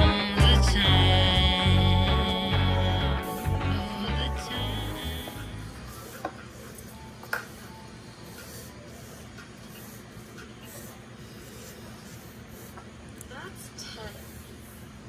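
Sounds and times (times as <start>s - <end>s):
low steady hum: 0.0s - 9.0s
pencil scratching on paper: 7.5s - 12.8s.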